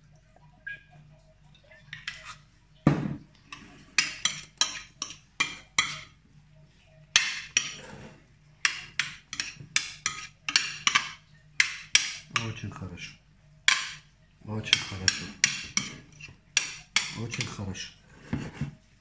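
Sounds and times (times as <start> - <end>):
metal spoon scraping glass dish: 1.9 - 2.5, 3.5 - 6.1, 7.4 - 11.2.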